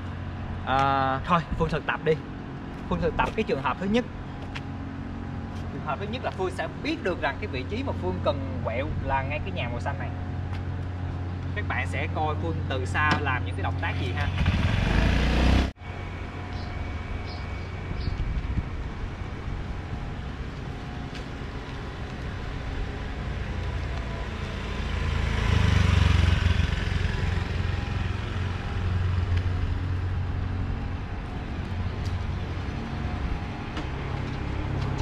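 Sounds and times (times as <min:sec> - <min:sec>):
street traffic engine rumble: 0:00.0 - 0:35.0
vehicle passing close: 0:13.9 - 0:17.8, 0:21.9 - 0:35.0.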